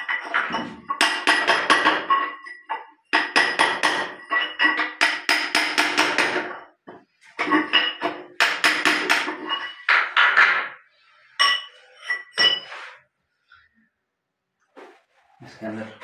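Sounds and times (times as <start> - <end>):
hammer striking steel chisel: 0.2 - 2.6, 3.2 - 6.7, 7.8 - 10.8.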